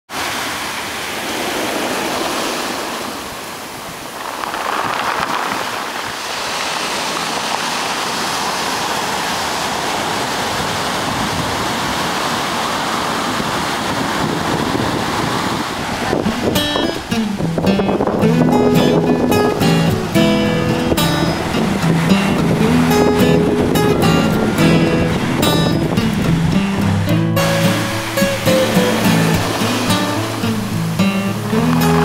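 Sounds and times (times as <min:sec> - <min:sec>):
ocean surf on pebbly shore: 0:00.1 - 0:32.0
music: 0:16.3 - 0:32.0.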